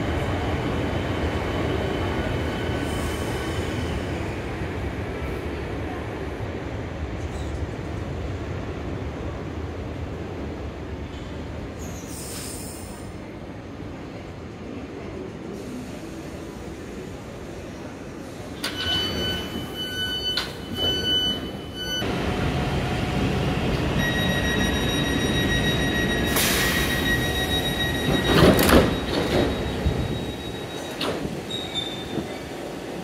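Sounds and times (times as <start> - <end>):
electronic door warning tones: 24.0 - 31.0
train doors banging shut: 24.3 - 32.3.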